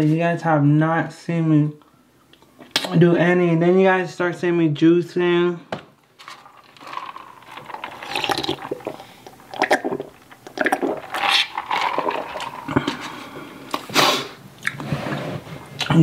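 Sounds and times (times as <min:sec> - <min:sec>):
person gulping and slurping: 0:06.4 - 0:15.2.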